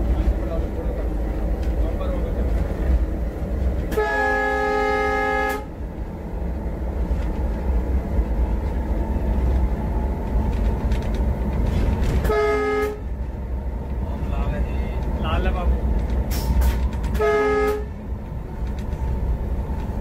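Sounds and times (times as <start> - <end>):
train engine and wheels rumbling: 0.0 - 20.0
locomotive air horn blasts: 3.9 - 5.8, 12.2 - 13.2, 17.1 - 18.0.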